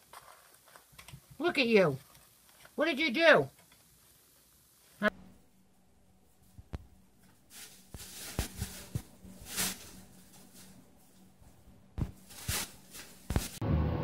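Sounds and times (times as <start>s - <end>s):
plastic bags rustling: 7.2s - 13.6s.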